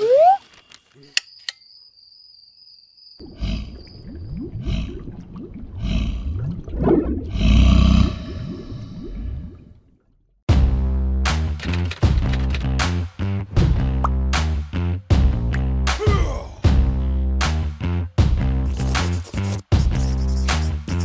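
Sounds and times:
deep crocodile roar: 5.8 - 8.9
sharp clicks: 11.6 - 12.8.

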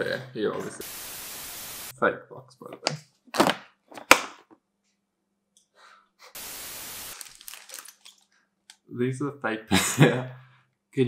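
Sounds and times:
static hiss: 0.6 - 1.9, 6.4 - 7.4
plastic wrap and paper rustling: 7.1 - 8.4.

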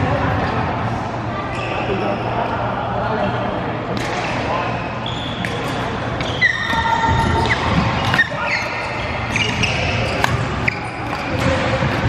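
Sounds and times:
shoes squeaking on sports floor: 5.0 - 12.0
racket hitting shuttlecock: 5.4 - 8.6, 9.3 - 12.0.

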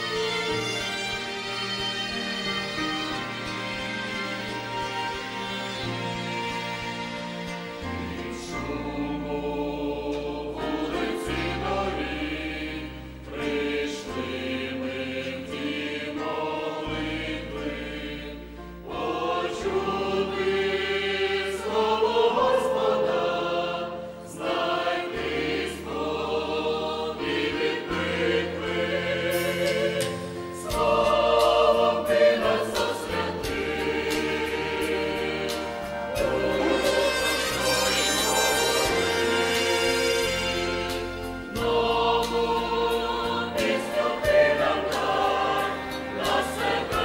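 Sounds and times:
instrumental accompaniment: 0.0 - 47.0
mixed choir singing: 7.8 - 47.0.

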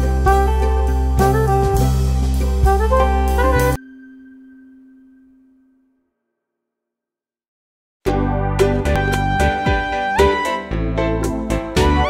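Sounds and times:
music with heavy bass: 0.0 - 3.8, 8.1 - 12.0.

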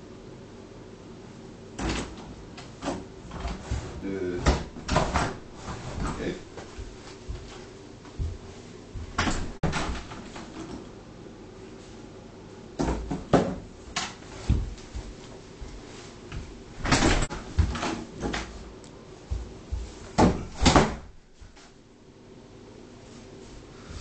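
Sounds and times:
wooden door knocks and bumps: 4.4 - 7.5, 9.0 - 10.4, 12.8 - 13.7, 14.5 - 15.1, 16.8 - 18.4, 20.1 - 21.2.

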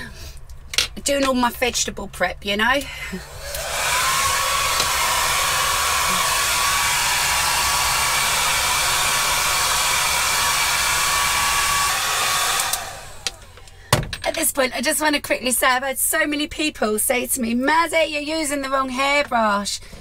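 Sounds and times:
hair dryer blowing: 3.1 - 13.8.

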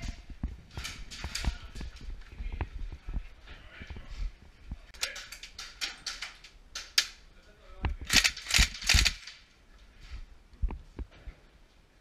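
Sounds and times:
airsoft rifle gunfire: 8.1 - 9.3
full-auto bursts: 8.1 - 9.3.

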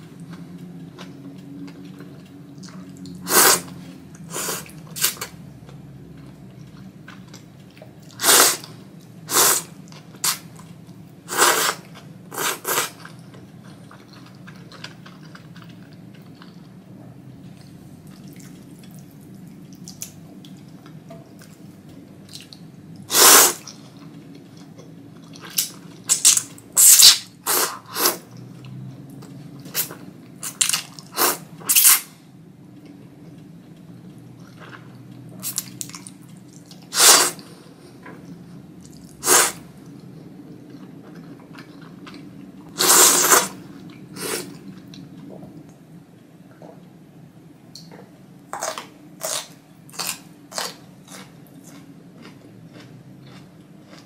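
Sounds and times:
wet noodle slurping: 8.1 - 8.7, 11.3 - 13.0, 42.8 - 43.6.

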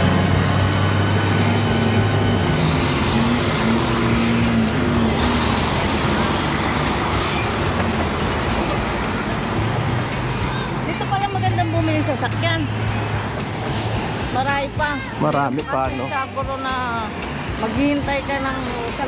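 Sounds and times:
passing cars: 0.0 - 19.0
vehicle engine humming: 0.0 - 19.0.

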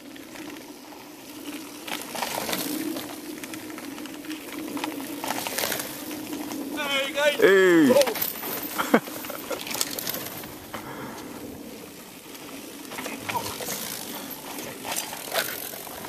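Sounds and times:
mountain bike tyres on dirt: 0.0 - 16.0
person shouting: 6.8 - 8.2.

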